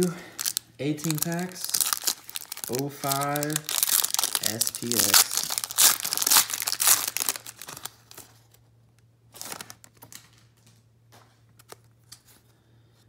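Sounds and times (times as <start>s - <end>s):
cards rustling: 0.0s - 8.6s, 9.3s - 10.5s
foil wrapper crinkling and tearing: 0.0s - 8.6s, 9.3s - 10.5s.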